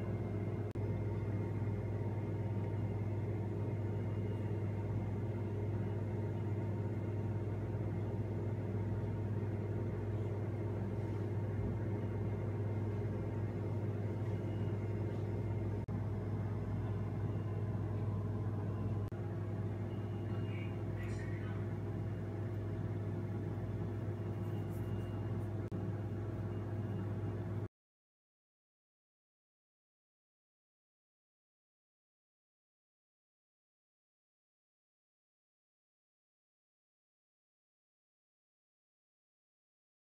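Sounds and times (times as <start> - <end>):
steady low hum: 0.0 - 27.7.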